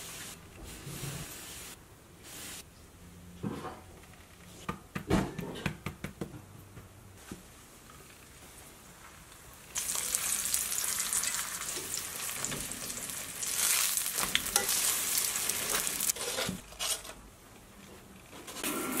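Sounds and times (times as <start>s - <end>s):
hot oil sizzling: 9.1s - 16.6s.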